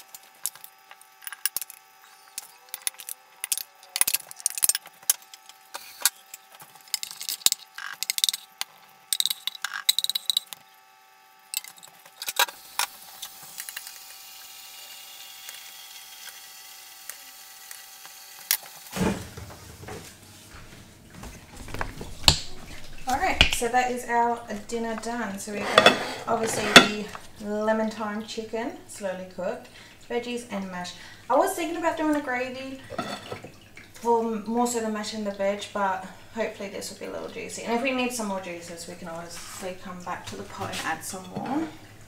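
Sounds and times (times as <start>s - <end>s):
spoon clinking on ceramic plates: 25.6s - 27.1s, 32.9s - 33.4s.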